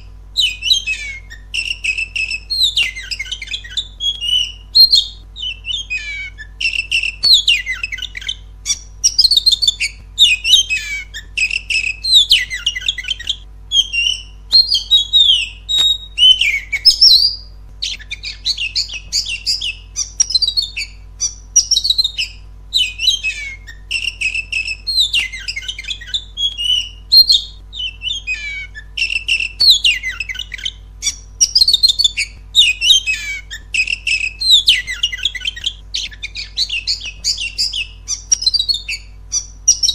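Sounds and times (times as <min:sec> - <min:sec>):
songbird singing: 0:00.0 - 0:39.9.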